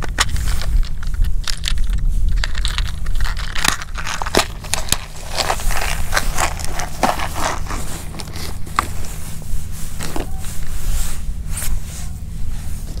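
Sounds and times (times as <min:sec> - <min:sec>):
low rumble: 0:00.0 - 0:13.0
rummaging in fabric bag: 0:02.6 - 0:13.0.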